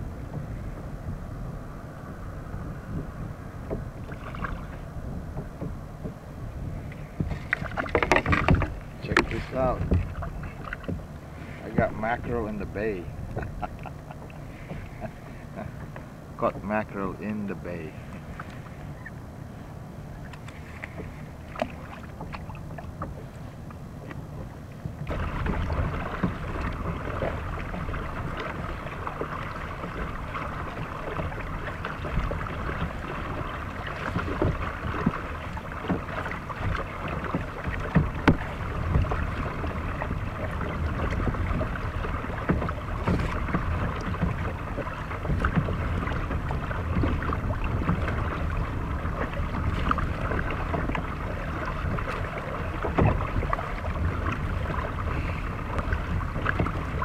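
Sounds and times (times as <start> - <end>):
kayak paddle strokes in water: 0.0 - 57.0
wind rumble on microphone: 0.0 - 57.0
water splashing and dripping: 25.0 - 57.0.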